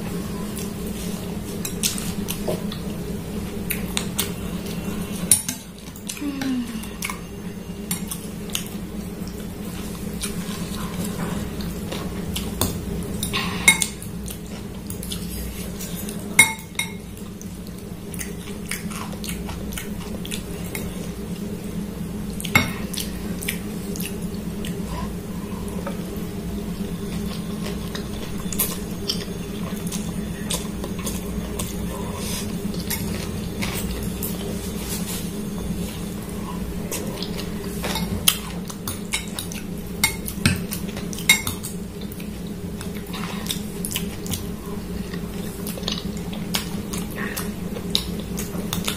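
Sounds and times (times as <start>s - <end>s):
steady low hum: 0.0s - 48.9s
cutlery clinking on glass bowl: 16.4s - 17.0s.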